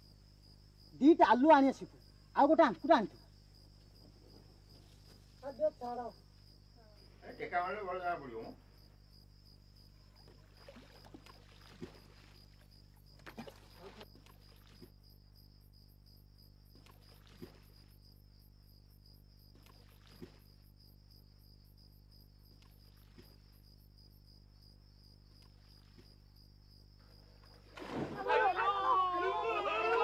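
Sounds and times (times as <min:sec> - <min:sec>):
cricket chirring: 0:00.0 - 0:30.0
small splash: 0:10.2 - 0:15.0, 0:16.7 - 0:18.0, 0:19.5 - 0:20.7, 0:22.5 - 0:23.6, 0:25.3 - 0:26.3, 0:27.2 - 0:30.0.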